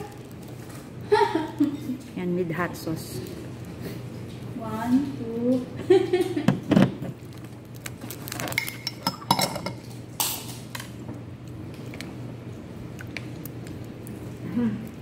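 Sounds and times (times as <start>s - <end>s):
crab shell crackling: 0.0s - 1.0s, 7.2s - 9.0s, 9.8s - 15.0s
chewing crab: 7.2s - 9.0s, 11.4s - 15.0s.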